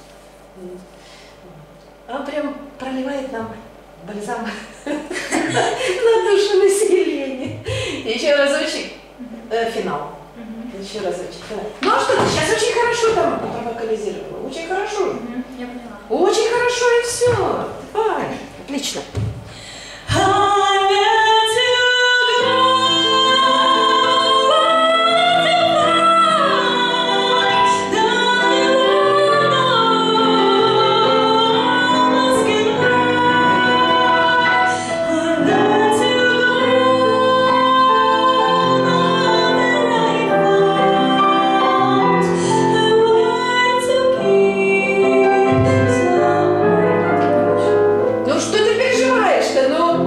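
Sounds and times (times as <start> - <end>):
woman singing a slow ballad: 20.0 - 47.7
digital piano chords: 21.3 - 50.0.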